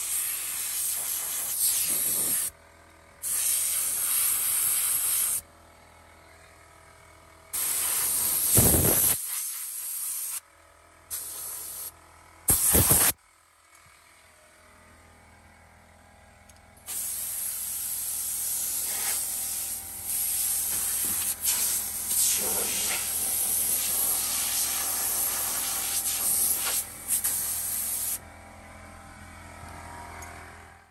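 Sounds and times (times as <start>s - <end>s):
air blow gun hissing: 0.0s - 2.5s, 3.2s - 5.4s, 7.6s - 10.4s, 11.1s - 11.9s, 12.5s - 13.2s, 16.9s - 28.2s.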